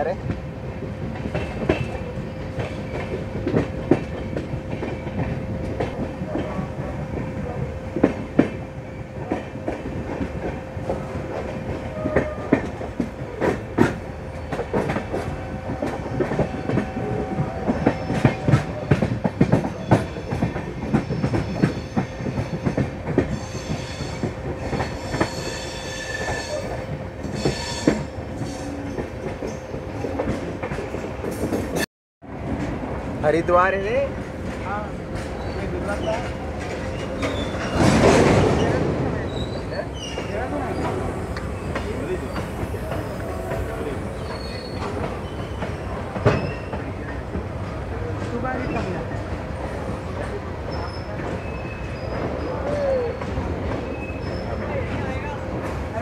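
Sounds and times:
train wheels clacking over joints: 1.1s - 6.7s, 9.2s - 31.9s
high wheel squeals: 23.3s - 26.8s, 41.5s - 46.8s.

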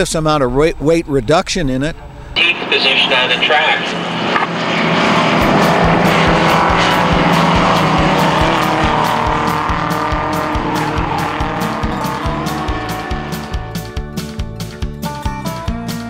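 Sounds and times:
racing car engine: 2.4s - 15.3s
music with steady drum beat: 8.9s - 16.0s.

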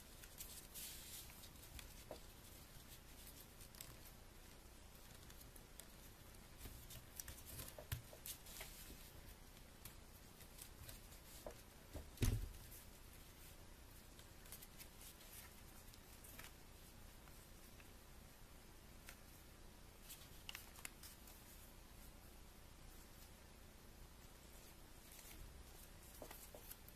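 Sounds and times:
paper creasing thump: 11.4s - 12.6s.

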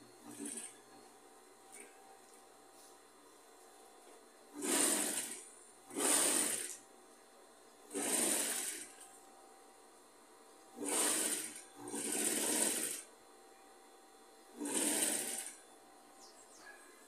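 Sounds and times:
sewing machine stitching: 0.2s - 0.8s, 4.6s - 6.8s, 7.9s - 9.0s, 10.8s - 13.1s, 14.6s - 15.6s.

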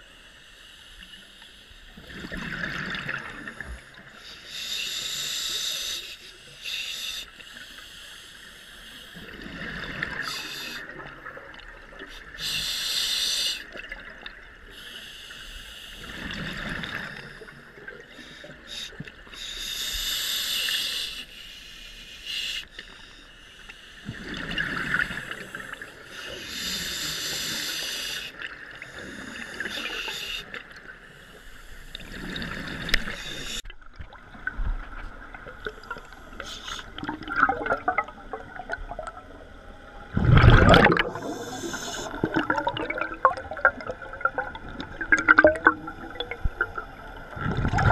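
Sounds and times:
regulator hissing inhalations: 3.5s - 9.2s, 10.2s - 10.9s, 12.1s - 13.8s, 14.7s - 16.3s, 18.2s - 24.1s, 25.2s - 32.2s, 33.0s - 33.6s, 36.1s - 37.0s, 41.0s - 42.4s
crackling bubbles: 31.9s - 47.9s
bubbling exhalations: 35.7s - 39.2s, 40.1s - 47.9s.

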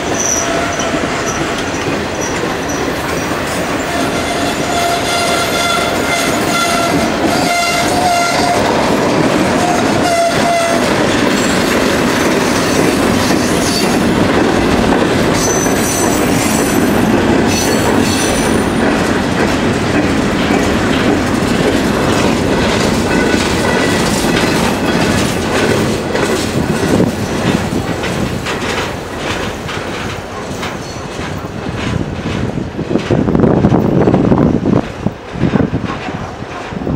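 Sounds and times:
high wheel squeal: 0.0s - 8.7s, 15.4s - 18.7s
train rumble: 0.0s - 36.9s
train wheels clacking over rail joints: 0.0s - 36.9s
wind buffeting microphone: 0.0s - 36.9s.

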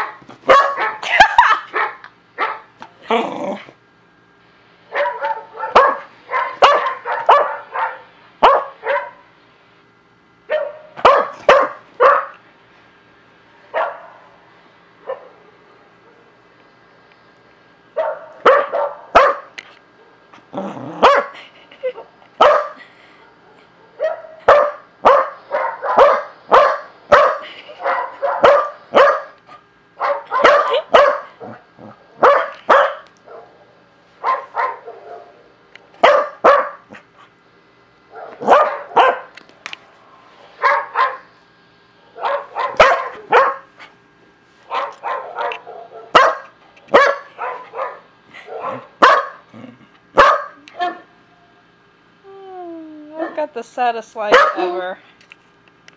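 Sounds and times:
dog barking: 0.0s - 1.0s, 1.7s - 2.7s, 4.9s - 9.2s, 10.5s - 12.4s, 13.7s - 14.3s, 18.0s - 19.5s, 21.0s - 21.4s, 22.4s - 22.8s, 23.4s - 29.4s, 30.0s - 31.6s, 32.2s - 33.6s, 34.2s - 35.3s, 36.0s - 36.9s, 38.1s - 39.3s, 40.6s - 41.3s, 42.2s - 43.7s, 44.7s - 49.4s, 50.2s - 51.0s, 54.3s - 54.7s.

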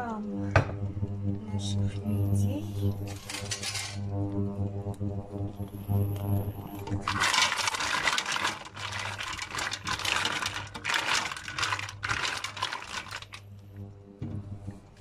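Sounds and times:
mussel shells clattering in a pot: 3.1s - 4.0s, 7.0s - 13.5s.

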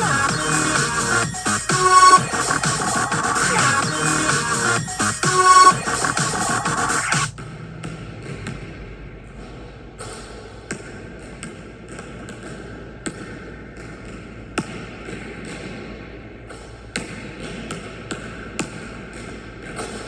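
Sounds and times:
basketball bouncing on gym floor: 7.3s - 20.0s.

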